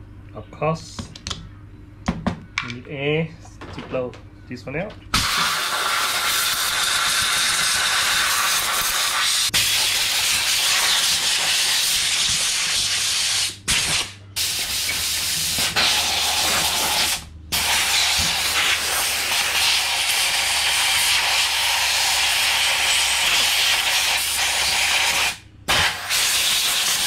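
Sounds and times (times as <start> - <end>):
compressed air blow gun hissing: 5.2 - 27.0.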